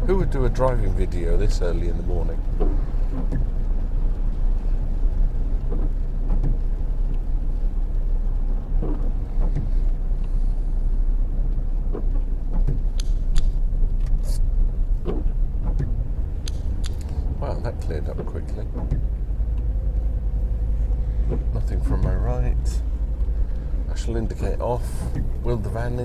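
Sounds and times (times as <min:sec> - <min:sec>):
engine and tyre rumble: 0:00.0 - 0:26.0
sharp clicks: 0:11.9 - 0:14.4, 0:15.0 - 0:17.2.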